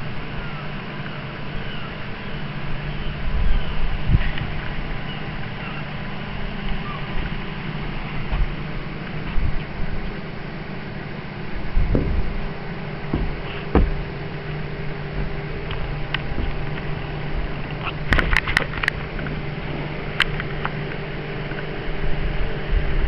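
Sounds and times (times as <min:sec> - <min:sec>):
low mechanical hum: 0:00.0 - 0:23.0
knocks: 0:13.1 - 0:14.0.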